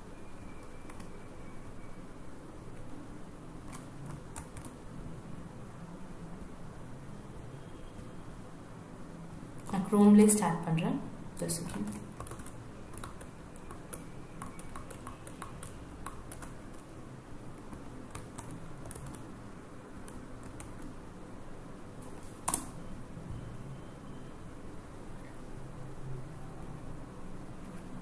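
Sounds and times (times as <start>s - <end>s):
keyboard keys clicking: 0.6s - 1.1s, 3.7s - 4.8s, 11.5s - 16.9s, 17.6s - 19.2s, 20.0s - 20.9s.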